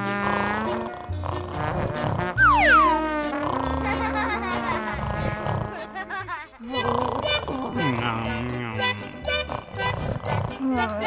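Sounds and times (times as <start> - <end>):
cartoon whistle sliding down: 2.4 - 3.1
children's music: 2.4 - 4.6, 6.2 - 11.0.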